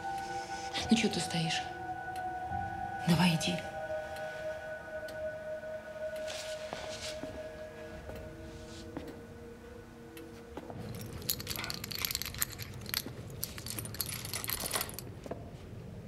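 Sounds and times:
held musical tone: 0:00.0 - 0:15.0
keys jangling: 0:10.8 - 0:15.1.

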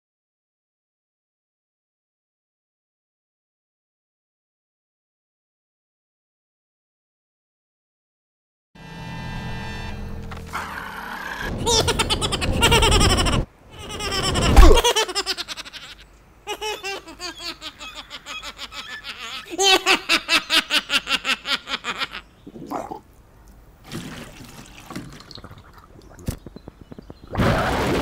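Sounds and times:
high-pitched cackling laugh: 0:11.5 - 0:22.4.

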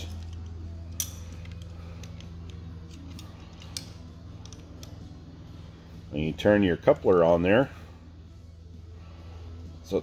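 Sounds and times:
light metal clicks: 0:00.0 - 0:05.1
steady low hum: 0:00.0 - 0:10.0.

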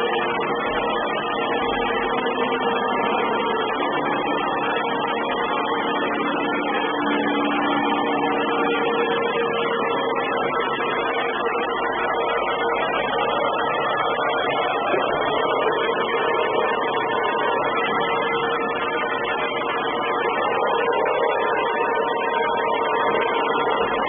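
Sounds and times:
low hum tone: 0:00.0 - 0:24.0
robot vacuum cleaner humming: 0:00.0 - 0:24.0.

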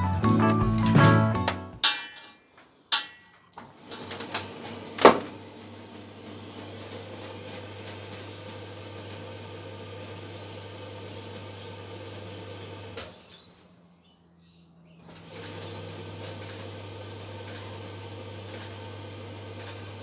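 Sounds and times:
dryer motor and drum humming: 0:03.6 - 0:13.6, 0:15.0 - 0:20.0.

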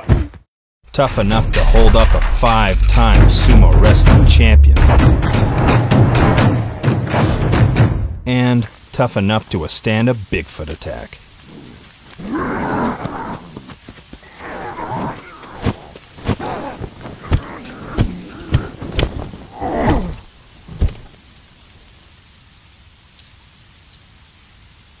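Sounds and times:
faint steady hiss: 0:08.3 - 0:25.0.

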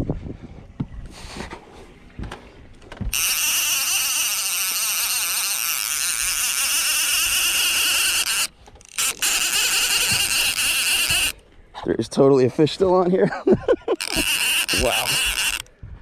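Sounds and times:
fishing reel gears whirring: 0:03.1 - 0:11.4, 0:13.8 - 0:15.7.

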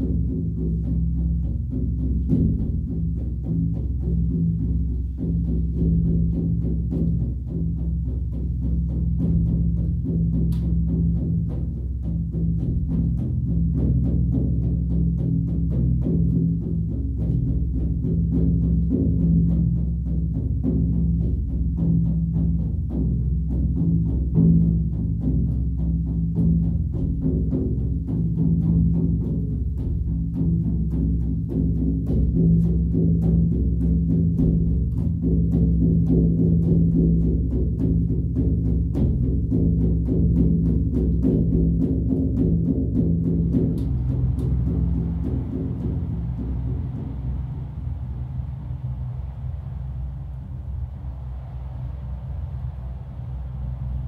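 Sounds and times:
deep drum beaten fast: 0:00.0 - 0:54.0
sustained low ring: 0:43.5 - 0:54.0.

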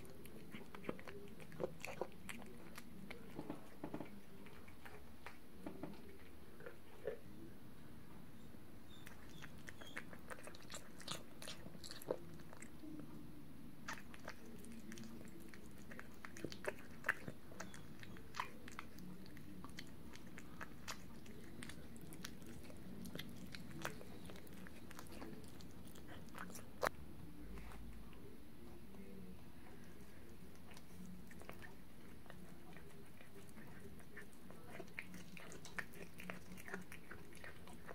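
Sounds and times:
cat chewing food: 0:00.0 - 0:07.2, 0:08.9 - 0:13.2, 0:13.8 - 0:37.9.

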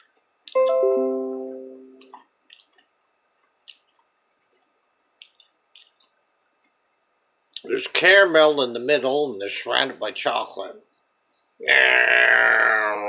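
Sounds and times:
strummed guitar chord: 0:00.6 - 0:02.1.

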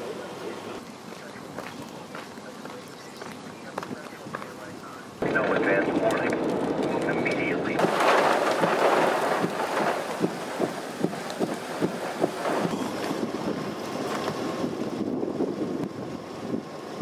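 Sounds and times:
wind blowing across microphone: 0:05.3 - 0:17.0.

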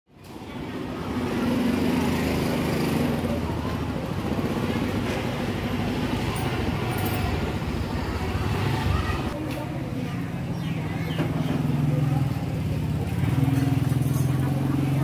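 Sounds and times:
vehicle engine running: 0:10.3 - 0:15.0.

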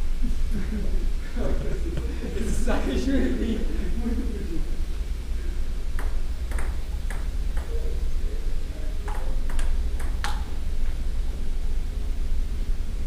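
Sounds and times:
steady low hum: 0:00.0 - 0:13.0
ping pong ball clicking: 0:06.0 - 0:07.8, 0:09.1 - 0:10.6.

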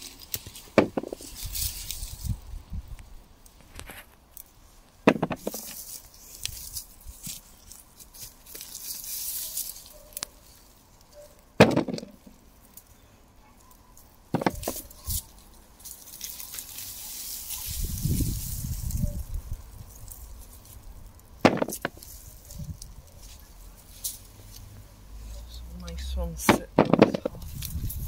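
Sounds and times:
rustling foliage and soil: 0:00.0 - 0:28.0
sharp knocks: 0:00.8 - 0:01.2, 0:05.1 - 0:05.6, 0:11.6 - 0:12.2, 0:14.3 - 0:14.8, 0:21.4 - 0:22.0.

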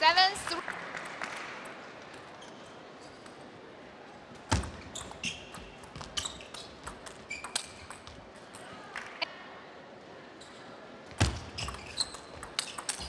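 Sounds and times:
shoes squeaking on floor: 0:04.5 - 0:08.2, 0:10.4 - 0:13.0.

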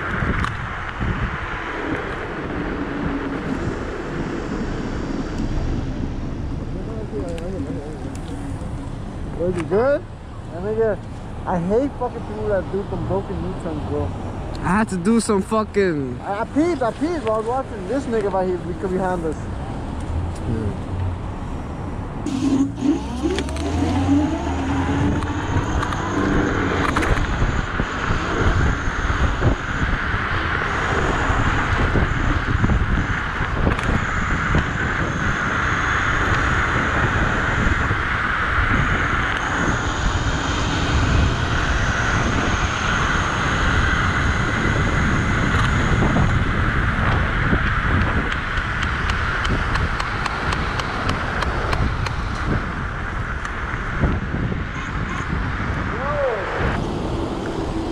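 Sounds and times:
wind rush over microphone: 0:00.0 - 0:15.2, 0:22.1 - 0:57.9
electric motor whine: 0:22.3 - 0:32.8, 0:56.5 - 0:57.9.

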